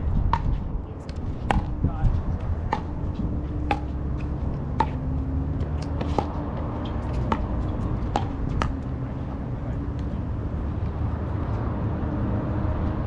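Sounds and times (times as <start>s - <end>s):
steady low rumble: 0.0s - 11.8s
paddles hitting ball: 0.3s - 1.9s, 2.5s - 8.9s.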